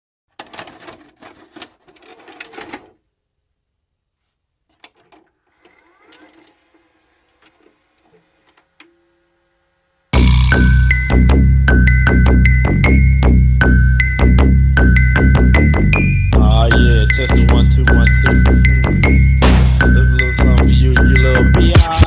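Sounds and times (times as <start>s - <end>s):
vhs cassette mechanism clattering: 0.3s - 3.0s
loud electronic music: 10.2s - 22.0s.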